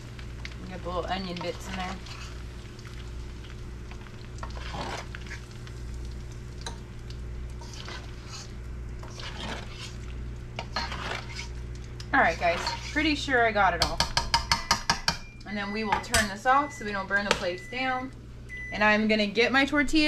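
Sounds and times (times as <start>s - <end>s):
oil sizzling: 0.0s - 15.6s
steady low hum: 0.0s - 20.0s
metal spoon scraping a pan: 1.3s - 2.4s, 4.4s - 5.4s, 7.6s - 10.0s, 10.6s - 11.6s, 12.2s - 13.3s.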